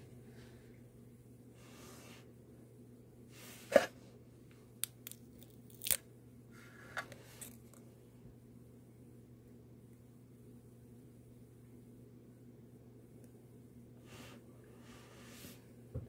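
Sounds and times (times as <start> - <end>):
adhesive tape crackling: 4.8 - 6.0.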